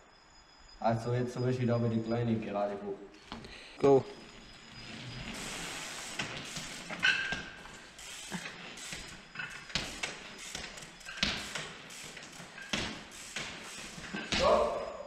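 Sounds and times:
bike wheels knocking on steps: 6.0s - 14.8s.

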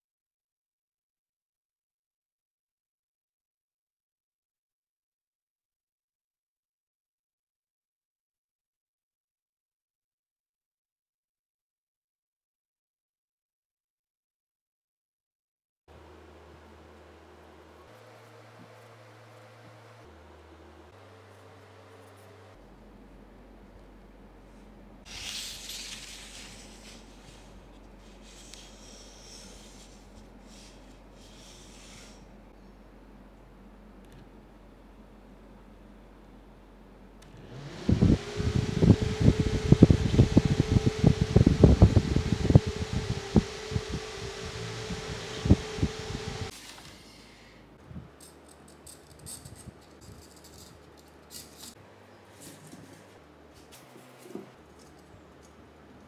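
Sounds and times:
loud hissy rustle: 25.0s - 32.2s, 37.5s - 47.6s
rustling and scraping of wires: 25.0s - 32.4s, 41.6s - 56.0s
light rustles and clicks: 48.2s - 55.7s.

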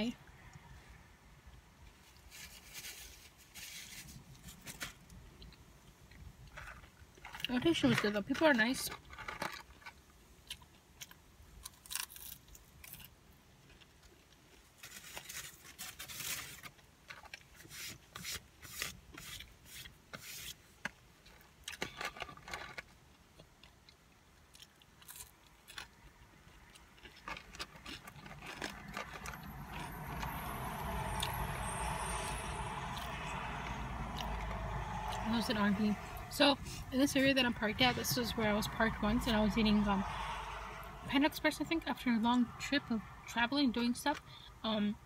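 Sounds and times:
steady rush of noise: 29.1s - 43.3s.

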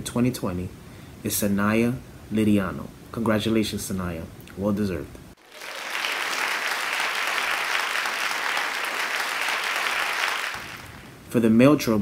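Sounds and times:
applause: 5.4s - 11.2s.

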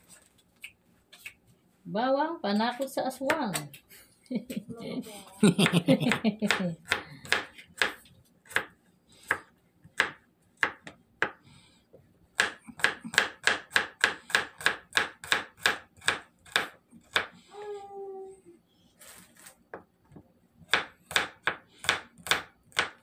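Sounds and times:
knife chopping on plastic board: 5.6s - 11.4s, 12.3s - 17.4s, 20.7s - 23.0s.

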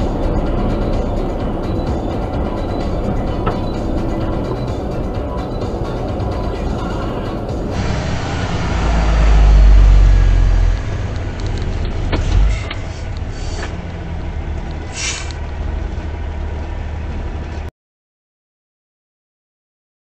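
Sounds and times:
truck engine and road rumble: 0.0s - 17.7s
short hiss: 14.9s - 15.4s.

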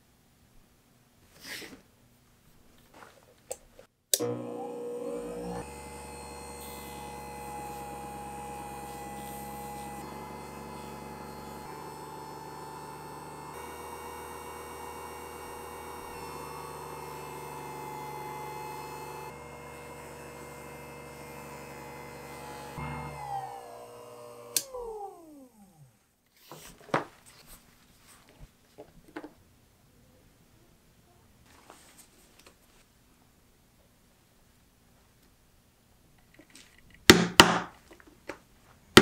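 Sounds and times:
electric motor humming: 4.2s - 26.0s.

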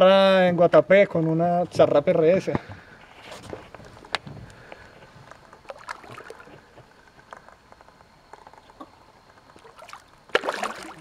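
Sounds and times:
water lapping and splashing: 5.5s - 6.9s, 9.5s - 11.0s.

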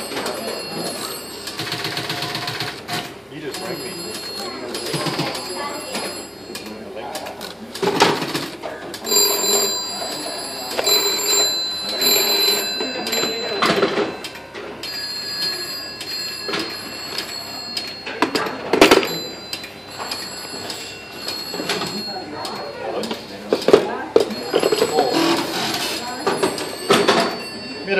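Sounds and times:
telephone bell ringing: 0.0s - 2.9s, 3.5s - 7.0s, 9.0s - 23.0s, 24.1s - 27.9s.

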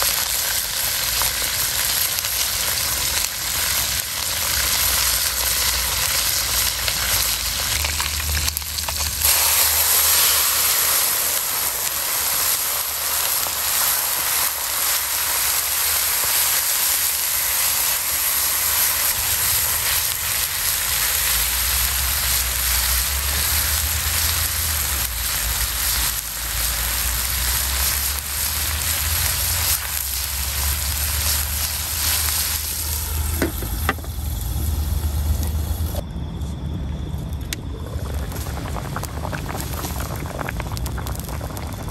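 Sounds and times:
fish sizzling in hot oil: 0.0s - 36.0s, 38.1s - 41.9s
liquid poured into hot wok: 4.3s - 33.7s.

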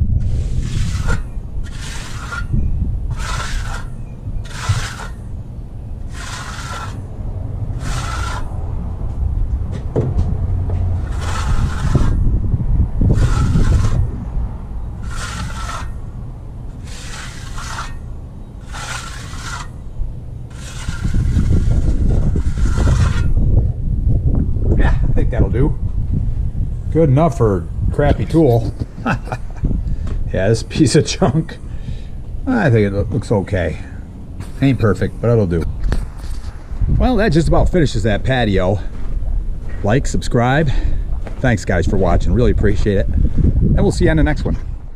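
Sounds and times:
low wind rumble on microphone: 0.0s - 44.9s
trowel scraping wet concrete: 0.2s - 5.3s, 6.1s - 7.1s, 7.7s - 8.6s, 11.0s - 12.2s, 13.1s - 14.2s, 15.0s - 16.1s, 16.7s - 19.9s, 20.5s - 23.4s.

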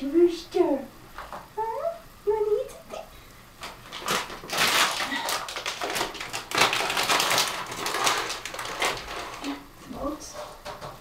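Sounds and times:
plastic bag crinkling: 3.6s - 9.7s.

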